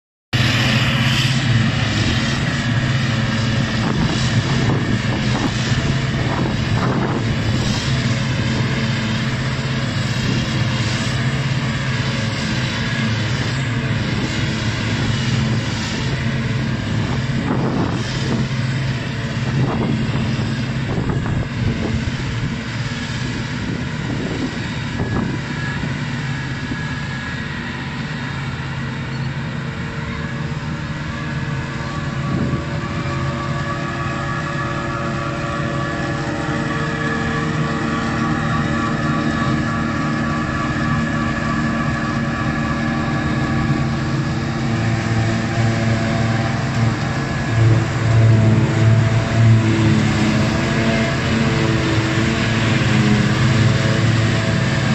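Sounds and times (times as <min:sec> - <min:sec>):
forage harvester engine droning: 0:00.3 - 0:54.9
tractor engine running: 0:28.1 - 0:54.9.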